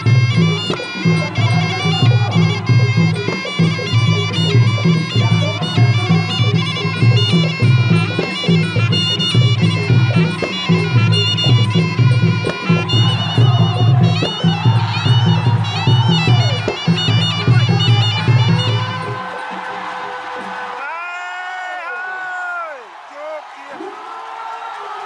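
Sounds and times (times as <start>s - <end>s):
shrill oboe melody: 0.0s - 20.5s
steady drum beat: 0.0s - 20.8s.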